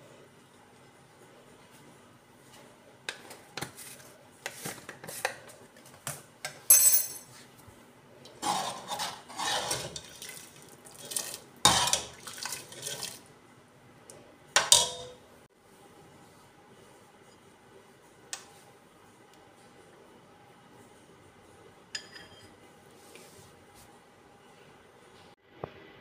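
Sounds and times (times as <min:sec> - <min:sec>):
metal ladle scraping metal pot: 0:08.4 - 0:13.2.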